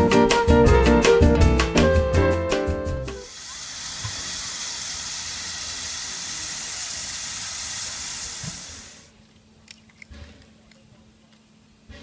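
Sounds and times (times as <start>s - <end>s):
steam locomotive hissing steam: 3.1s - 9.1s.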